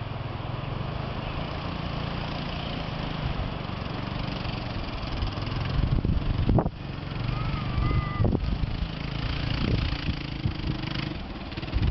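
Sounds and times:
quad bike engine running: 0.0s - 11.9s.

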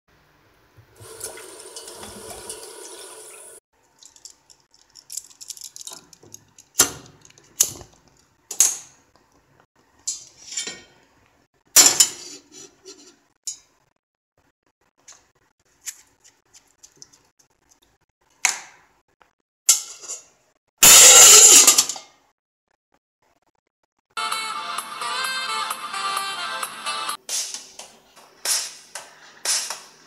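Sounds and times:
tap water running into pot: 0.9s - 3.6s.

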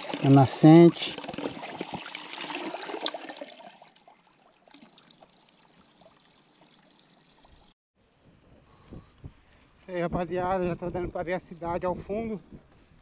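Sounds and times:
water trickling from a spout: 0.0s - 7.8s.

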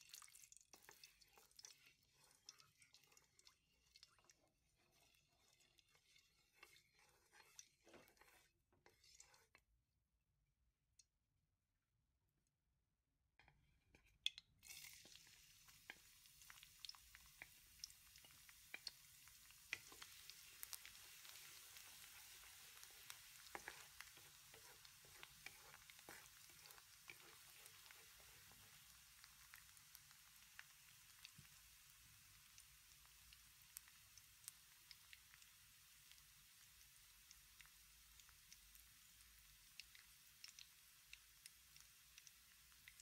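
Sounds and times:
garlic sizzling in hot oil: 0.0s - 9.6s, 14.6s - 43.0s
wooden spatula scraping pan: 3.9s - 9.6s, 21.3s - 28.7s.

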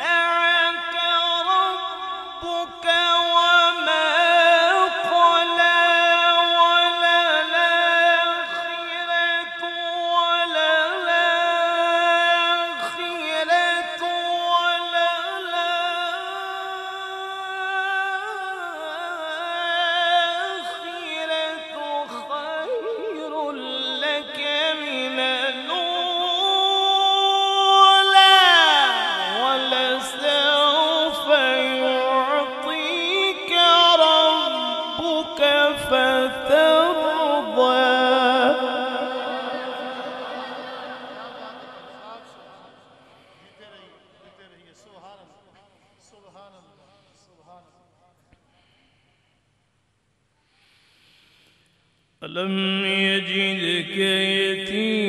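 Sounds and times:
man reciting in melodic chant: 0.0s - 47.8s, 52.2s - 55.0s.

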